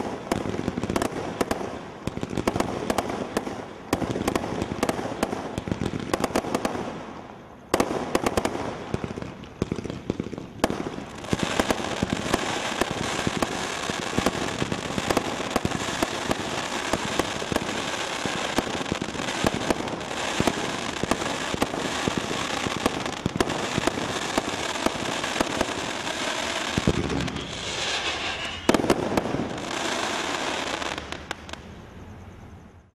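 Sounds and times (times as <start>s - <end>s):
firework shots and bursts: 0.0s - 31.7s
firework crackling: 0.0s - 31.8s.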